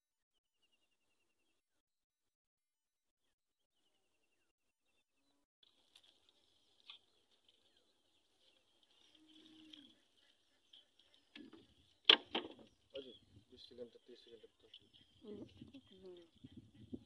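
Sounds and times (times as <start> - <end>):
faint high-pitched chirping: 3.2 - 17.0
sharp knocks: 12.1 - 12.6.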